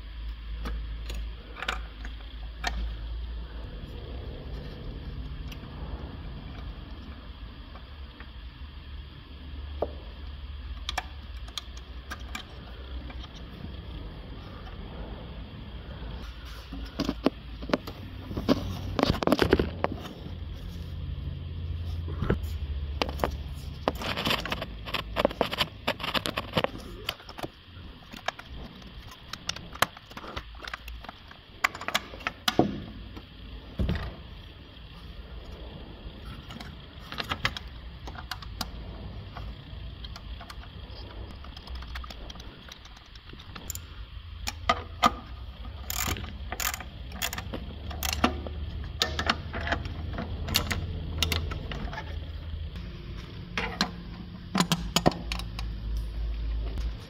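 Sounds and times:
ratchet wrench clicking: 0:40.0 - 0:51.7.

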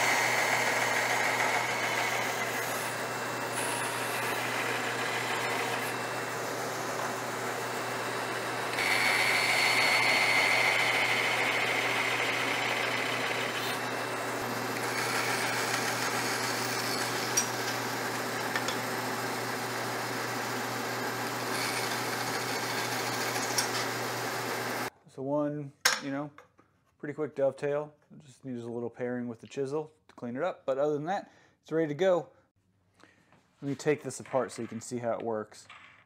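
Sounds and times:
band saw motor hum: 0:00.0 - 0:24.9
saw blade cutting wood: 0:00.0 - 0:24.9.

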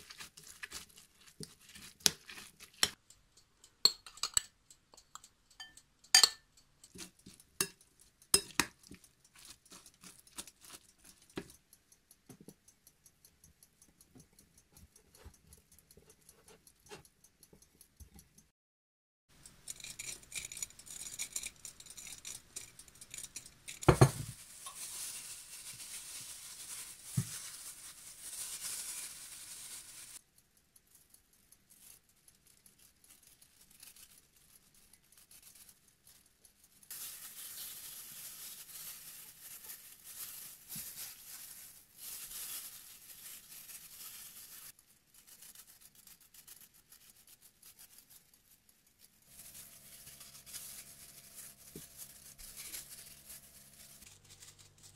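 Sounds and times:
spoon scooping dry oats: 0:00.0 - 0:03.0, 0:03.9 - 0:11.6
spoon clinking on glass: 0:03.9 - 0:06.4, 0:08.4 - 0:08.7.

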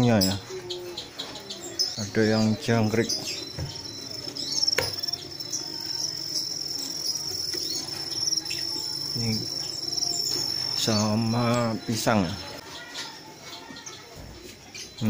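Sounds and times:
crickets chirping: 0:02.8 - 0:12.6.

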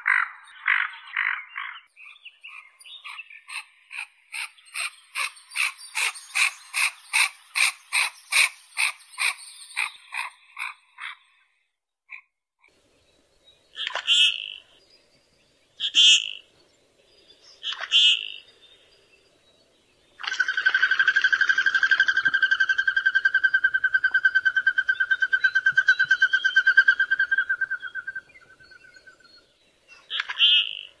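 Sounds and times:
rapid bird trill: 0:01.2 - 0:11.4.

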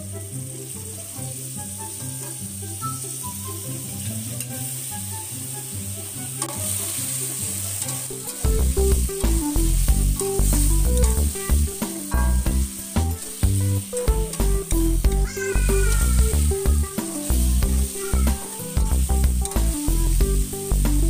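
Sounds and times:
background music with bass: 0:00.0 - 0:21.0
food sizzling in oil: 0:00.0 - 0:21.0
metal spatula scraping pan: 0:06.3 - 0:09.4.

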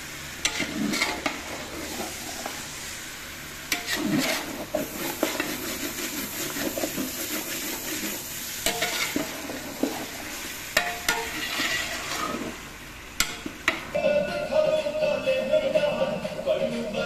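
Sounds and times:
chicken sizzling in a pot: 0:00.0 - 0:14.2
metal spatula scraping pot: 0:00.4 - 0:02.6, 0:03.7 - 0:12.6.

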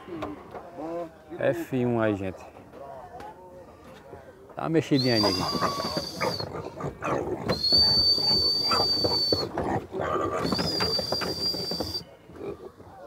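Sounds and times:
high steady whistling tone: 0:05.0 - 0:06.5, 0:07.5 - 0:09.5, 0:10.4 - 0:12.1
pigs squealing and grunting: 0:05.0 - 0:12.9.

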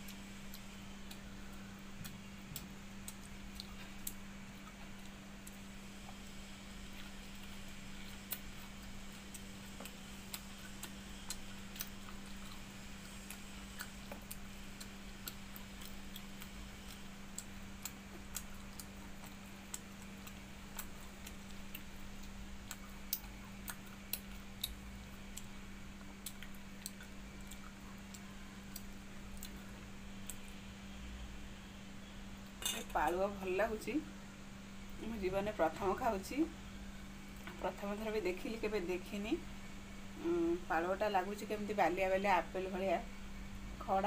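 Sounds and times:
chewing smacks: 0:02.0 - 0:30.6.

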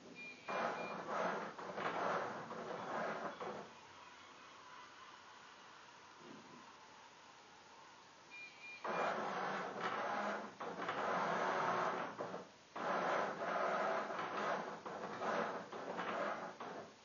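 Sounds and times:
robot motor carriage running: 0:00.5 - 0:03.7, 0:08.8 - 0:16.8
short high beeps: 0:08.3 - 0:08.9.

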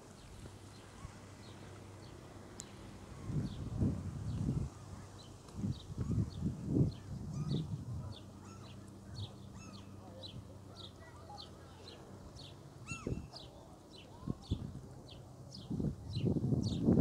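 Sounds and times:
birds chirping: 0:00.2 - 0:16.9
lower bird calls: 0:05.7 - 0:14.6.

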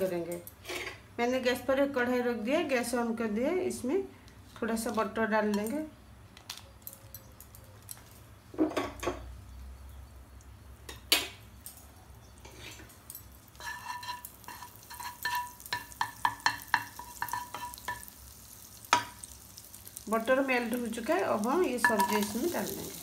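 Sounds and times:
butter sizzling: 0:10.9 - 0:23.0
spatula clicking against pan: 0:13.7 - 0:18.1.

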